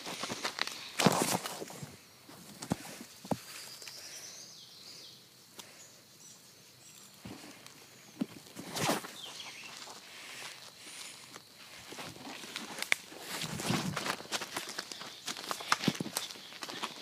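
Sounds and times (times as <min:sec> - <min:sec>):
twigs cracking and crunching: 0:00.0 - 0:01.8, 0:06.9 - 0:17.0
footsteps on twigs and leaves: 0:00.0 - 0:04.1, 0:06.8 - 0:17.0.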